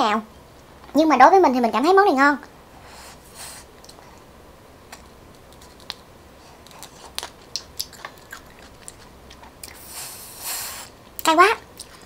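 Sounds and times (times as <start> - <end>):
person chewing with wet crunches: 4.9 - 12.0.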